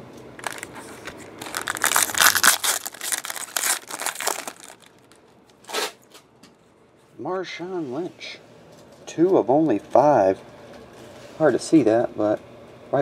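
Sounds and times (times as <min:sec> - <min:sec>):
foil wrapper crinkling and tearing: 0:00.4 - 0:05.2.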